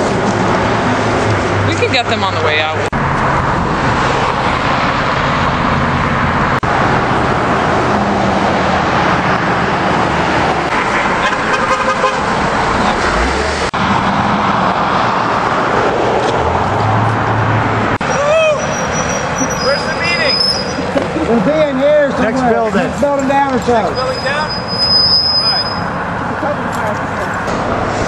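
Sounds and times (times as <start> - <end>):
cars and trucks passing: 0.0 - 28.0
car horn toots: 11.2 - 12.3.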